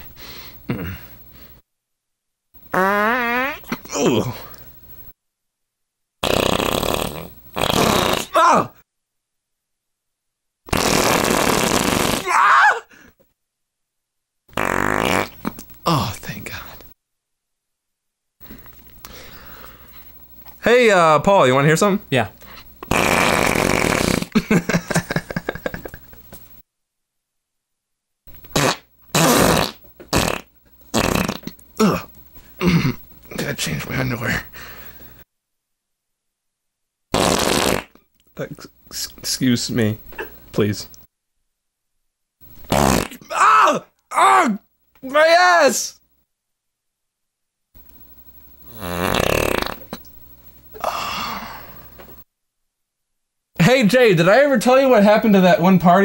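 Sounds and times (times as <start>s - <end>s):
breathy hissing sound: 0.0s - 1.7s, 6.2s - 8.4s, 10.7s - 13.2s, 18.4s - 20.3s, 22.4s - 26.2s, 28.5s - 35.3s, 48.0s - 52.2s
fart sputtering: 2.7s - 4.2s, 6.2s - 8.4s, 10.7s - 12.5s, 14.5s - 15.6s, 22.8s - 26.0s, 28.4s - 33.0s, 37.1s - 38.0s, 42.6s - 43.3s, 48.6s - 50.1s
faint hiss: 10.7s - 12.2s, 37.1s - 41.1s, 47.8s - 52.3s.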